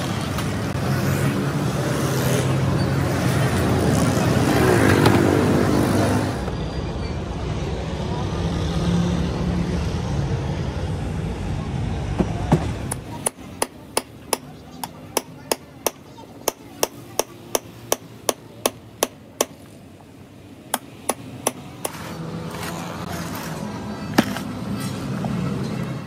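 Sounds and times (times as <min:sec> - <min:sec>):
sharp hammer taps: 0:12.9 - 0:19.6.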